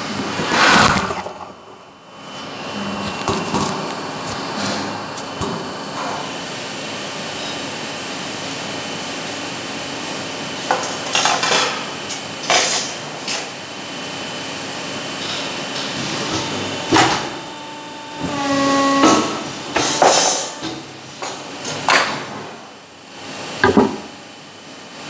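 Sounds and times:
workshop machinery humming: 0:00.0 - 0:25.0
sharp knocks: 0:23.6 - 0:24.1.

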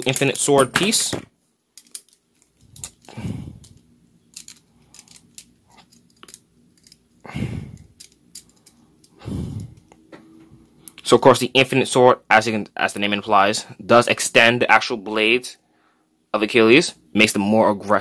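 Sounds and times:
plastic parts rubbing: 0:01.8 - 0:07.2, 0:07.8 - 0:09.9.

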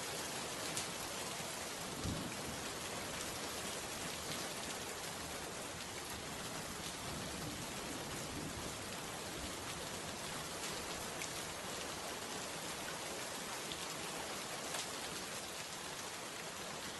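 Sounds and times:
rain falling: 0:00.0 - 0:16.9.

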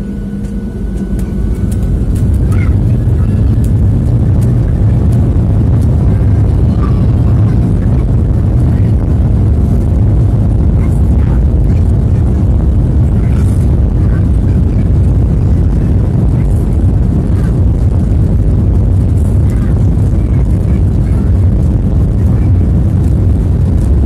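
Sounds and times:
jet engines rumbling: 0:00.0 - 0:24.0.

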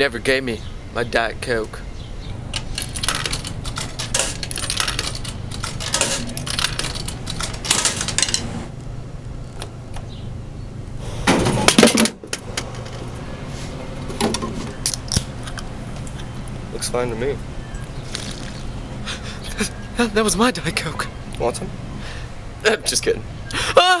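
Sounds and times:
coins clinking into vending machine: 0:02.5 - 0:08.5.

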